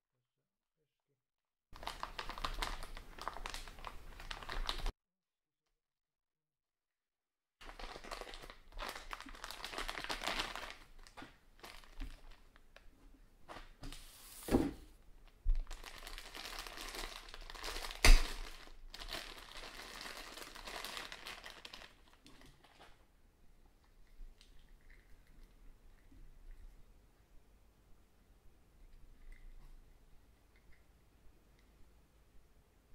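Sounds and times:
plastic bag crinkling: 0:01.8 - 0:04.9, 0:07.6 - 0:12.8, 0:15.2 - 0:23.0.

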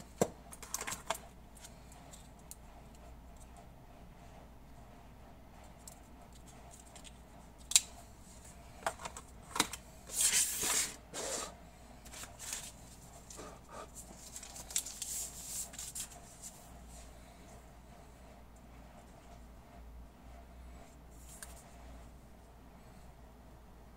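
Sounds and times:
rustling and rubbing: 0:10.1 - 0:17.1.

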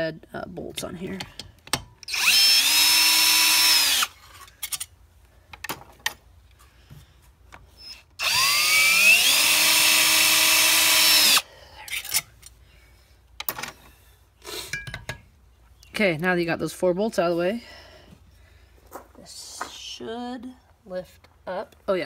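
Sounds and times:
power drill whine: 0:02.1 - 0:04.2, 0:07.8 - 0:11.4.

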